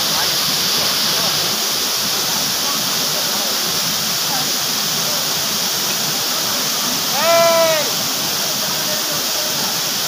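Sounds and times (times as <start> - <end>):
waterfall rushing: 0.0 - 10.0
person shouting: 7.1 - 7.9.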